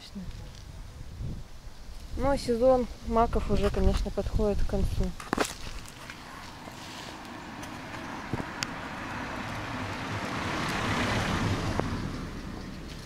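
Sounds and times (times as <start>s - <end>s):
car driving past: 6.2s - 13.0s.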